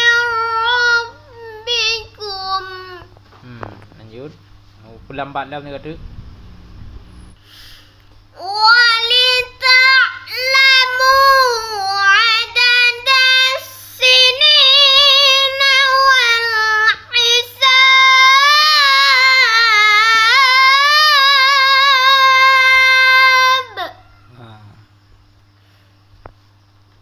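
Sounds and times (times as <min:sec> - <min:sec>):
boy chanting recitation: 0:00.0 - 0:04.3, 0:08.4 - 0:24.8.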